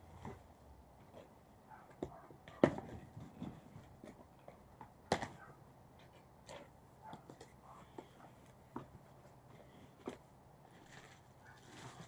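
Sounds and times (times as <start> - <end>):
cardboard rustling and scraping: 1.9 - 5.4, 6.6 - 12.0.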